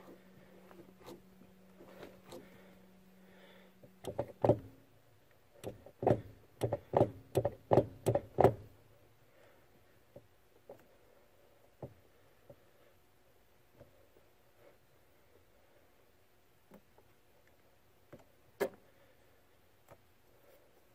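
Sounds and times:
brake pedal arm knocking: 4.0 - 4.8, 5.6 - 8.7.

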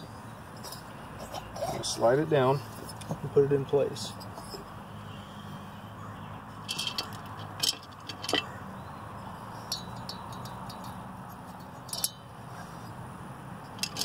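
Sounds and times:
light metallic clinks: 9.6 - 12.3.

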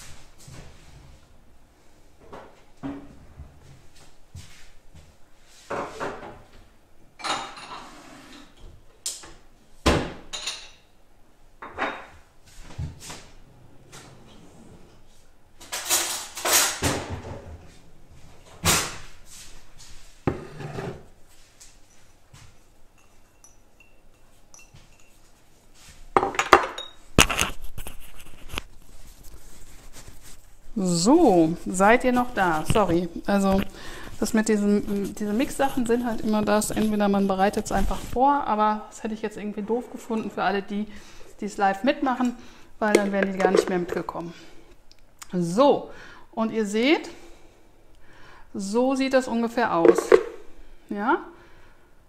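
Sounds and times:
kitchen knocks and clatters: 5.7 - 6.5, 7.2 - 8.6, 9.3 - 10.9, 11.6 - 12.2, 15.6 - 17.7, 26.2 - 28.0, 42.9 - 44.1, 49.8 - 50.4
metal spoon clinking on glass jars: 23.0 - 25.2, 26.6 - 27.0.

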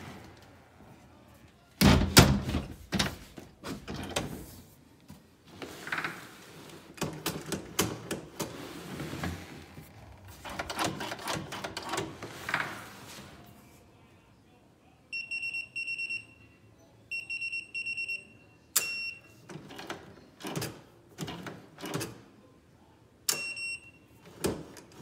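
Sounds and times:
loud door thump: 1.8 - 3.1.

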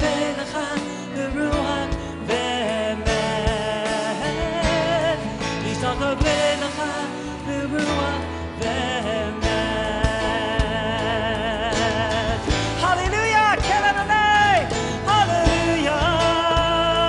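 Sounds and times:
worship band playing: 0.0 - 17.0
drums beating: 7.8 - 17.0.

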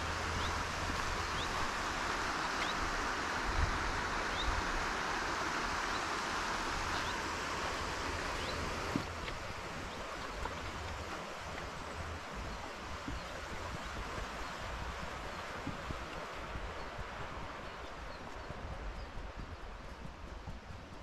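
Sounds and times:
stream water rushing: 0.0 - 21.0.

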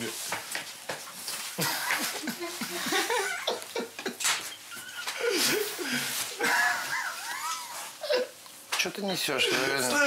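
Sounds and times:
people laughing: 1.6 - 8.4
high-pitched squealing laugh: 2.5 - 5.8, 6.4 - 8.3.

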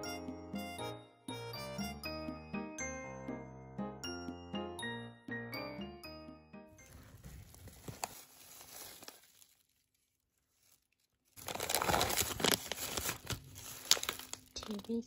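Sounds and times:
bags crinkling and rustling: 6.8 - 15.0.

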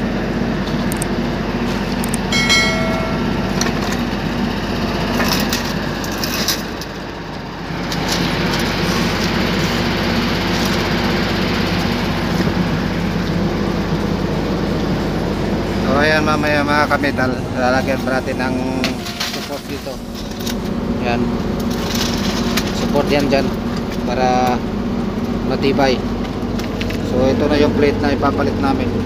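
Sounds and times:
engine running with low hum: 0.0 - 29.0
clicks and crackles: 0.9 - 1.1.

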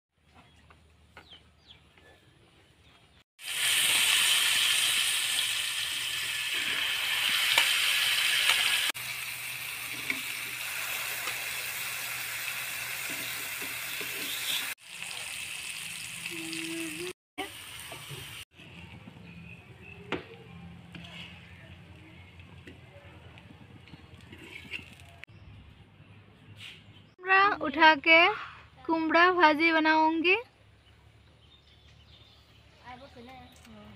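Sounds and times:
vegetable slices sizzling in oil: 3.4 - 18.4.

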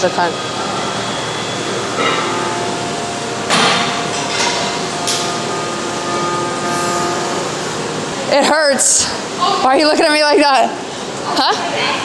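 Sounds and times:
background hum and hiss: 0.0 - 12.0
sharp metallic clanks: 1.9 - 7.6.

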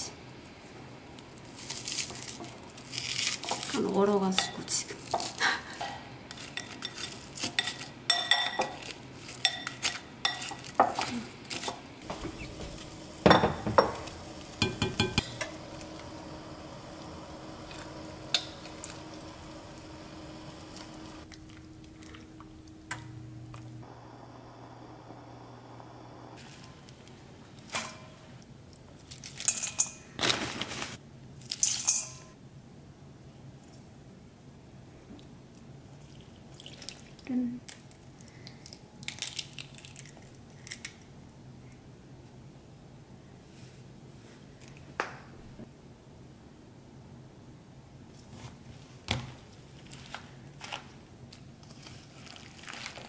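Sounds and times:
steady background hum: 0.0 - 53.0
metal spoon clinking on pot: 7.6 - 8.7.

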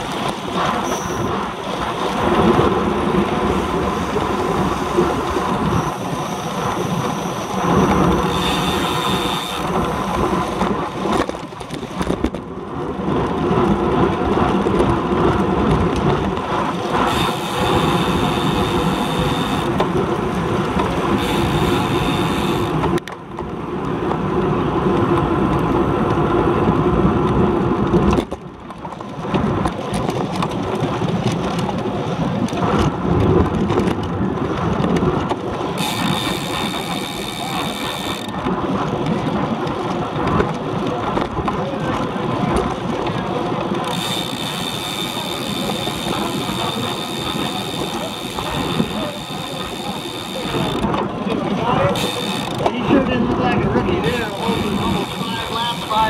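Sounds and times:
high steady whine: 0.0 - 11.1, 16.8 - 23.0, 35.8 - 38.4, 43.3 - 56.0
tyre and road noise: 0.0 - 56.0
wind rushing over microphone: 0.0 - 56.0.

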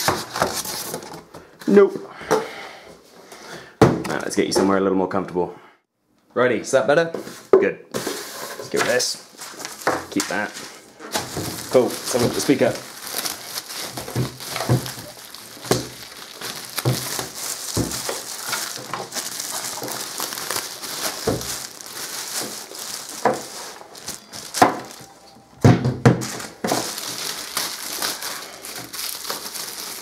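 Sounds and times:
plastic packaging crinkling: 0.0 - 1.2, 9.3 - 25.4, 26.0 - 30.0.

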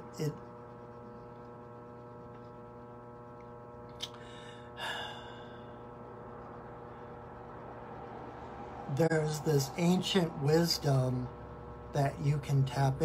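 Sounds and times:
low background hum: 0.0 - 13.0
man breathing: 4.1 - 5.9.

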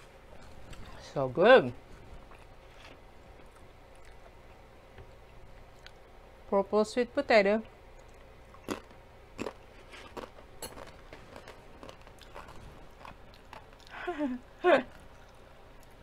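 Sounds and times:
chip crunching: 2.2 - 4.3, 8.0 - 14.0.

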